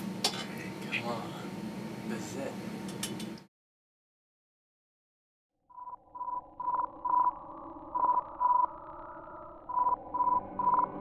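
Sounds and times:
morse code beeps: 0:05.8 - 0:07.4, 0:09.7 - 0:11.0.

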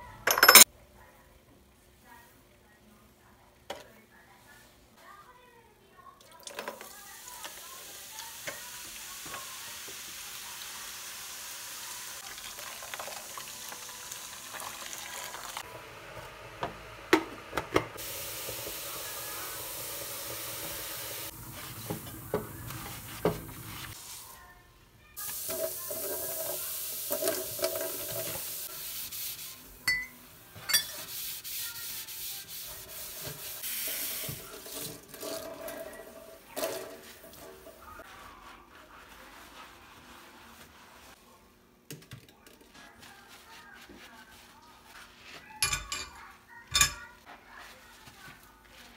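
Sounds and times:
wet sponge scrubbing faucet: 0:18.0 - 0:24.4, 0:25.2 - 0:29.8, 0:30.8 - 0:41.2, 0:42.7 - 0:45.5.

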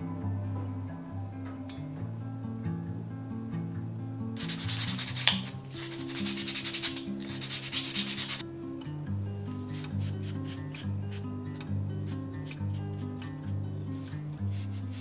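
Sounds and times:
soft background music: 0:00.0 - 0:15.0
sandpaper rubbing on wood: 0:04.4 - 0:08.4, 0:09.7 - 0:11.2, 0:12.1 - 0:15.0
sharp click: 0:05.0 - 0:05.6.

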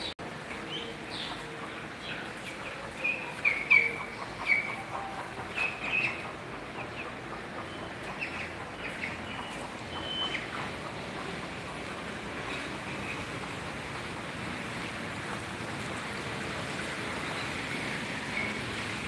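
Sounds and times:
poultry chirping: 0:00.0 - 0:11.7.

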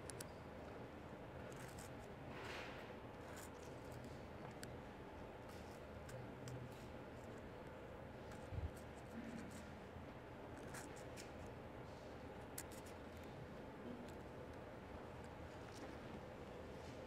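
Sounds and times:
knife scratching watermelon rind: 0:10.6 - 0:11.5, 0:12.4 - 0:13.0.

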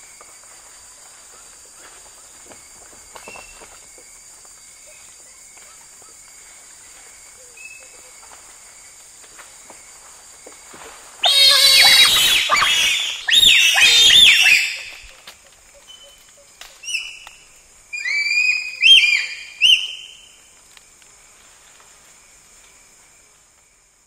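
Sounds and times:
bonobos giving high-pitched calls: 0:11.2 - 0:15.2, 0:17.9 - 0:20.0.

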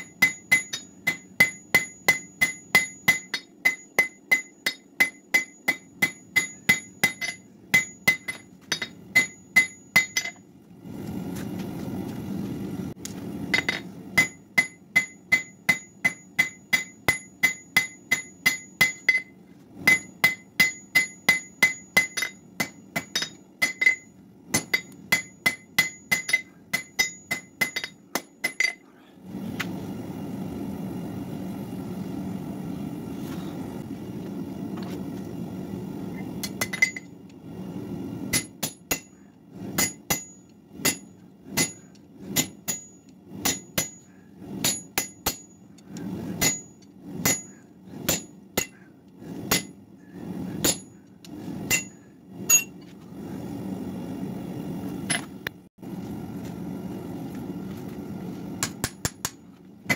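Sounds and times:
hammer ringing on anvil: 0:00.0 - 0:10.4, 0:13.6 - 0:28.8, 0:38.3 - 0:39.1, 0:39.8 - 0:45.6, 0:46.4 - 0:48.8, 0:50.6 - 0:51.0, 0:51.7 - 0:52.7.

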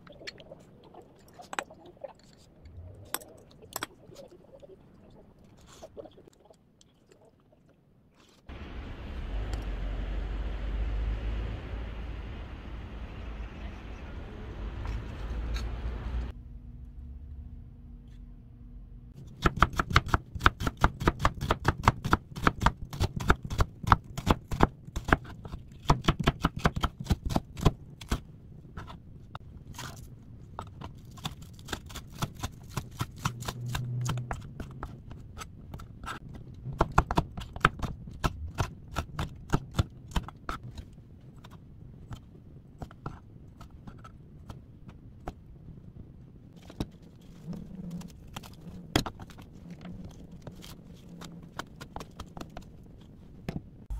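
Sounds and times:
knife chopping on plastic board: 0:19.4 - 0:28.2, 0:36.8 - 0:40.6.

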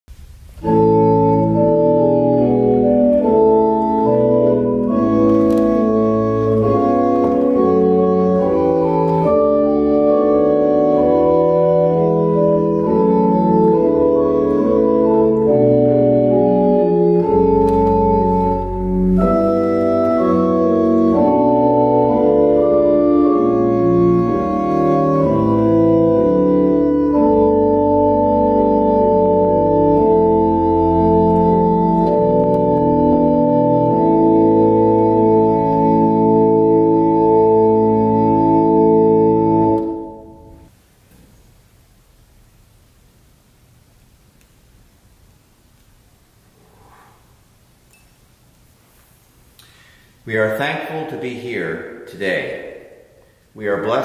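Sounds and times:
electronic organ chords: 0:00.1 - 0:40.8.

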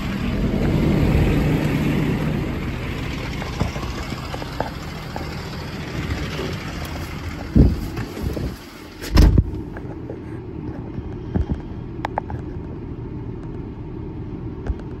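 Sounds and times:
diesel engine idling: 0:00.0 - 0:15.0
loud thump: 0:09.1 - 0:09.6.

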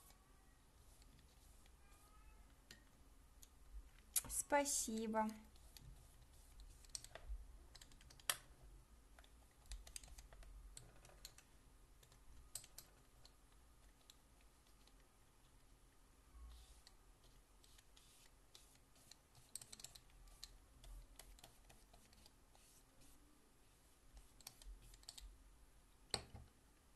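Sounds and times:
brush scraping on paper: 0:05.5 - 0:06.9, 0:16.5 - 0:19.6, 0:21.2 - 0:25.0.

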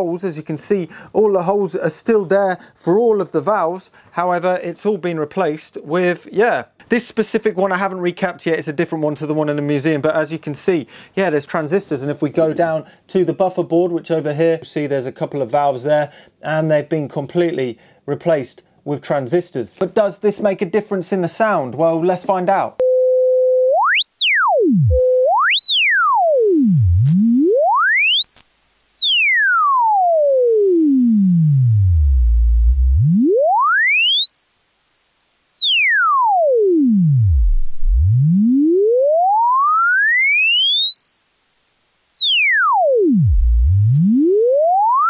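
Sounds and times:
sine tone sweeping in pitch: 0:22.8 - 0:45.0.

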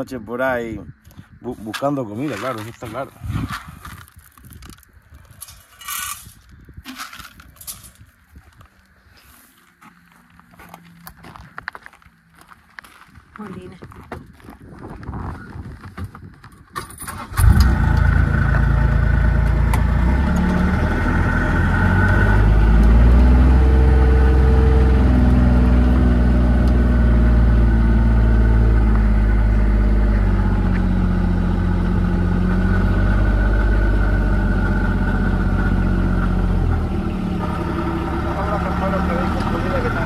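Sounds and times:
car engine running: 0:17.4 - 0:40.0.

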